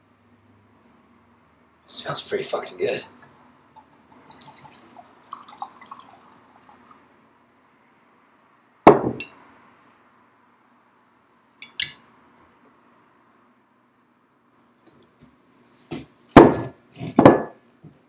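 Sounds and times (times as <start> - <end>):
glass knocking on hard surface: 8.9 - 9.3.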